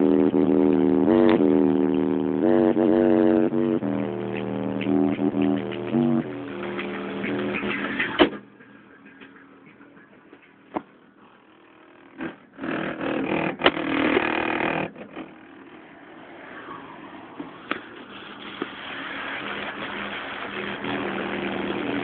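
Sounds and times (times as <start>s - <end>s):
music from car sound system: 0.0s - 10.6s, 16.7s - 22.0s
rush of noise: 14.1s - 22.0s.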